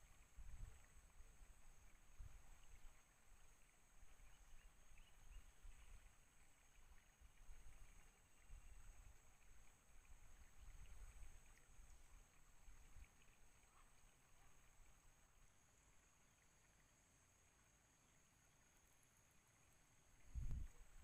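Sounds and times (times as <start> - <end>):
wind rumble on microphone: 0.1 - 3.0, 20.2 - 21.0.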